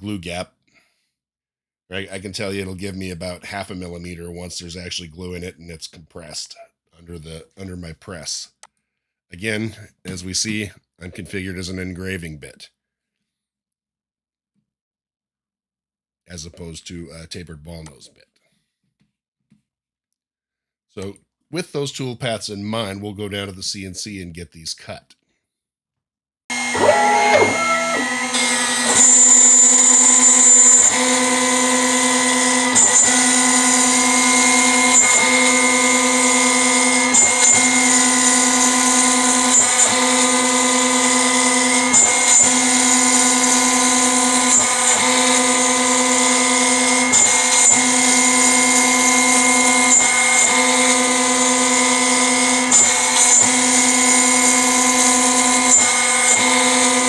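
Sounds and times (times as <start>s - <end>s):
router spindle whine: 26.5s - 57.0s.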